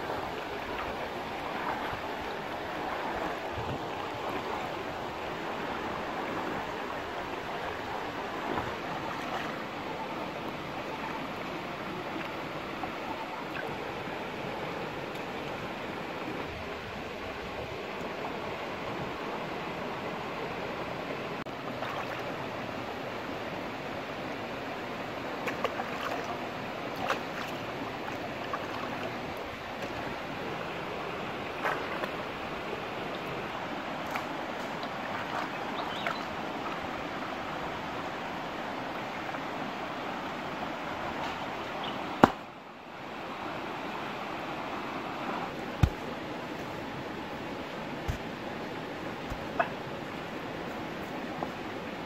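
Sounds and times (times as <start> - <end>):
stream running over rocks: 0.0 - 52.0
small splashes: 25.4 - 29.2.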